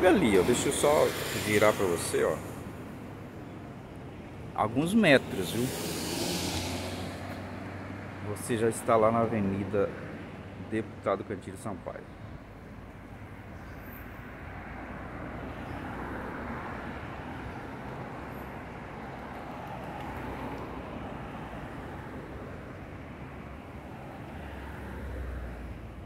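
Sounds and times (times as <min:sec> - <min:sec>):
car driving past: 0:05.1 - 0:08.2.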